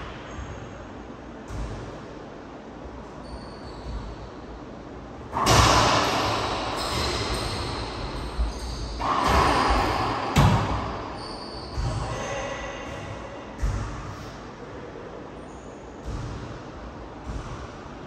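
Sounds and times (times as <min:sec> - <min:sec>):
racquetball hitting court walls: 0:01.4 - 0:04.3, 0:05.2 - 0:14.5, 0:15.9 - 0:18.0.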